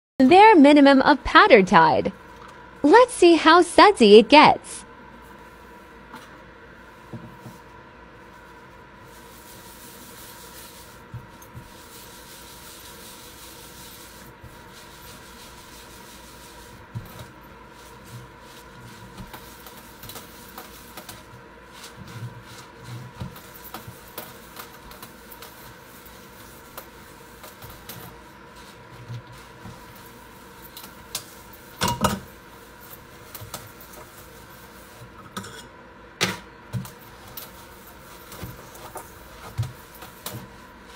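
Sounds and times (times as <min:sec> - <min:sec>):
sponge scrubbing a steel sink: 0:08.2 - 0:35.2, 0:36.8 - 0:40.9.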